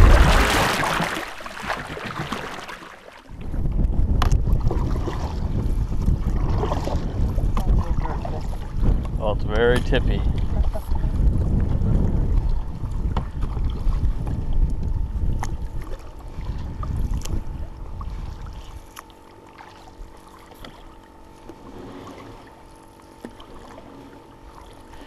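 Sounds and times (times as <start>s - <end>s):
wind rumble on microphone: 0.0s - 0.9s, 3.3s - 18.9s
paddle strokes in water: 0.0s - 9.2s, 9.8s - 25.0s
light knocks on canoe: 13.1s - 13.6s.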